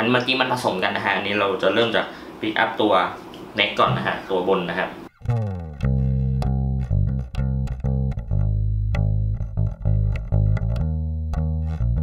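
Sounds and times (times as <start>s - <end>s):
electric bass plucked notes: 3.8s - 4.3s, 5.1s - 12.0s.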